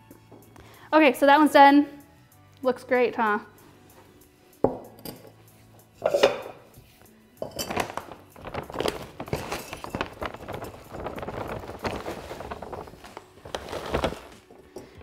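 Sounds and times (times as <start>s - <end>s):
plastic bag crinkling: 7.5s - 15.0s
soil pouring into a pot: 7.5s - 15.0s.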